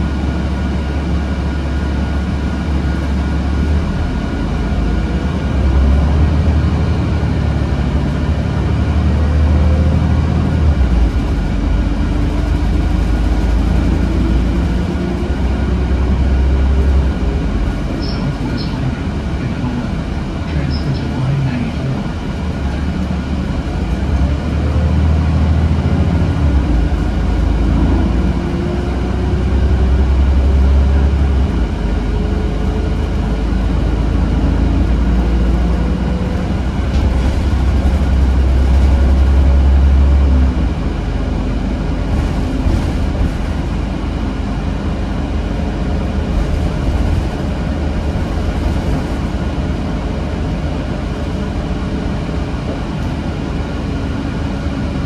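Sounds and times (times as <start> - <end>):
bus engine and road rumble: 0.0 - 55.0.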